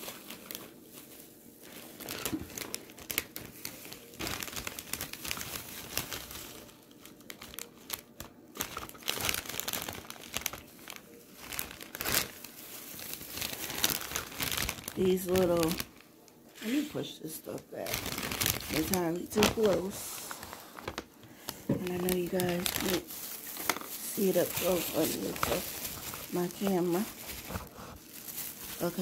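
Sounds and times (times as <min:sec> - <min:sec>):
plastic packaging crinkling: 0:00.0 - 0:29.0.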